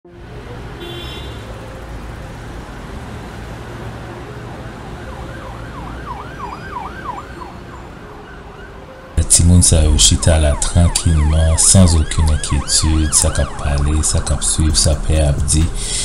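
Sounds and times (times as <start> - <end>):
siren wailing in fast sweeps: 4.9 - 8.8, 9.9 - 15.0
steady low rumble: 13.0 - 16.0.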